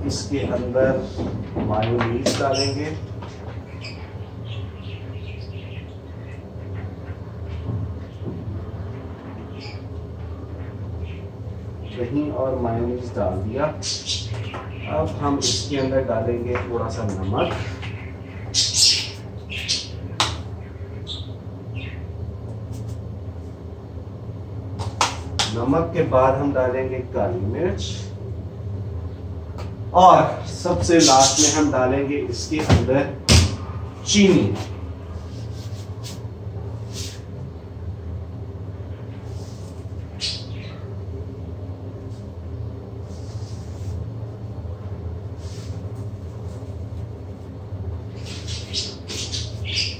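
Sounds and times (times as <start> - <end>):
low hum: 0.0 - 31.0.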